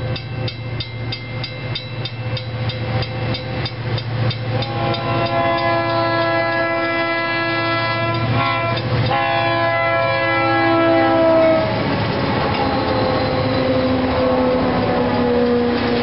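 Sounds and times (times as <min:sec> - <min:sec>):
train engines and wheels rumbling: 0:00.0 - 0:16.0
locomotive horn chord: 0:04.5 - 0:11.9, 0:12.6 - 0:16.0.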